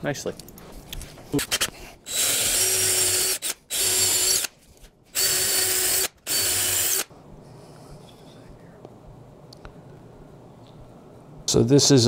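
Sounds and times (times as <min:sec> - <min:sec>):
cordless drill running: 0:02.1 - 0:04.5, 0:05.2 - 0:07.1.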